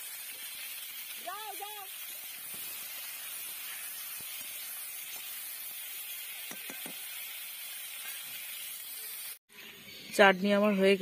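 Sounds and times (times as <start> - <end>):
tomatoes sizzling in hot oil: 0.0 - 11.0
spatula scraping a pan: 2.4 - 8.8.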